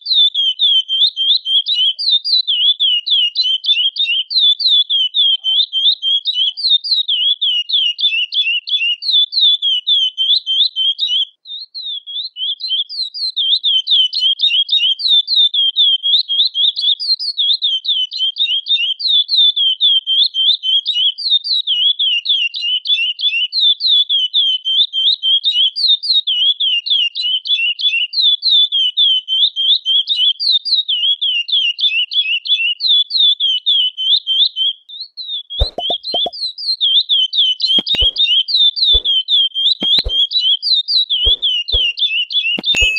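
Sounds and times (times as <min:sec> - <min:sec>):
finch calling: 0:35.6 - 0:36.3, 0:37.8 - 0:38.3, 0:39.8 - 0:40.3, 0:41.2 - 0:42.0.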